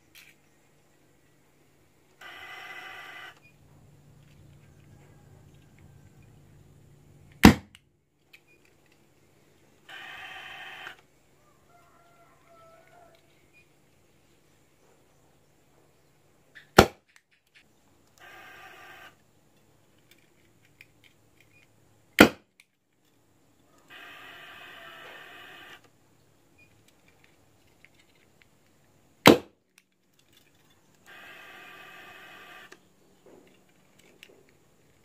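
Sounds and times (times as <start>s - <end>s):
drawn-out pitched call: 9.9s - 13.4s, 23.7s - 25.8s, 31.0s - 32.8s.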